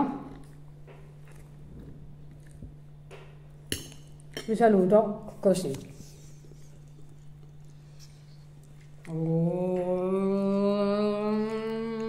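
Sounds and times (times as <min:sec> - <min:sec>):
faint low hum: 0:00.0 - 0:12.0
woman singing long note: 0:09.1 - 0:12.0.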